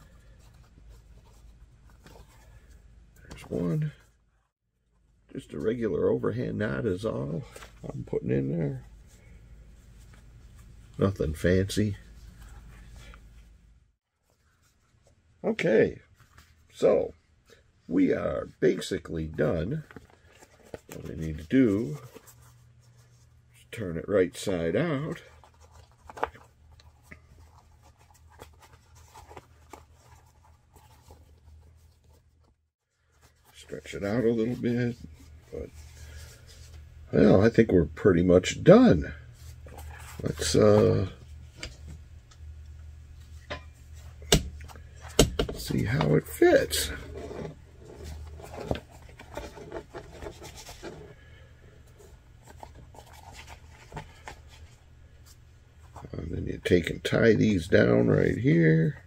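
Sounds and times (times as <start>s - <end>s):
low steady hum: 0.0s - 59.0s
leather rustling and scraping: 24.8s - 37.4s, 38.7s - 42.0s, 43.1s - 56.2s.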